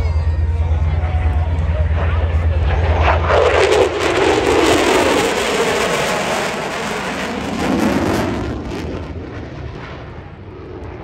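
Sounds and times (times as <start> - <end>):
jet engine rushing overhead: 0.0 - 11.0.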